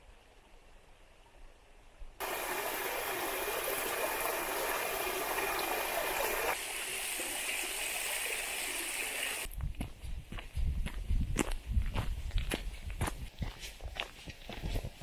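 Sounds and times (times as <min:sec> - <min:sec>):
water running over rocks: 0:02.2 - 0:09.5
footsteps on trail: 0:09.5 - 0:15.0.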